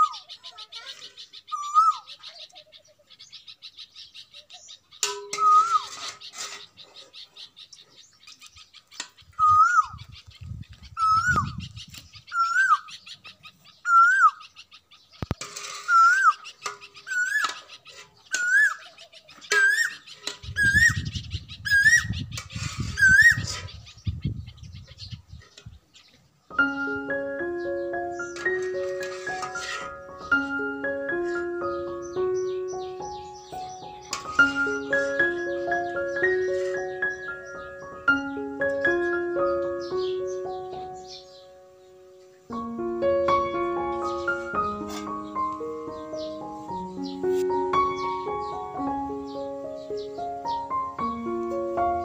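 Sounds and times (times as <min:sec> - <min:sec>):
higher bird chirps: 0:00.0 - 0:52.0
bird whistling call: 0:01.4 - 0:02.2, 0:05.2 - 0:06.4, 0:09.3 - 0:10.1, 0:10.9 - 0:11.7, 0:12.3 - 0:13.2, 0:13.8 - 0:14.5, 0:15.8 - 0:17.6, 0:18.3 - 0:18.9, 0:19.5 - 0:23.9.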